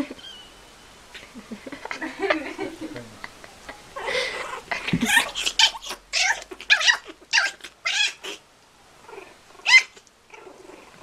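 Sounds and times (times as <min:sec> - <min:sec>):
high-pitched squealing cries: 0:04.0 - 0:08.4, 0:09.6 - 0:10.0.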